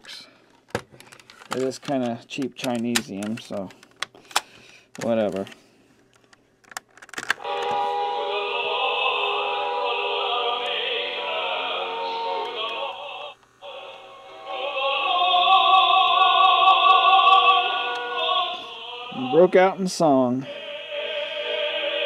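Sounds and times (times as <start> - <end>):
tinny church singing from cassette: 7.4 - 22.0.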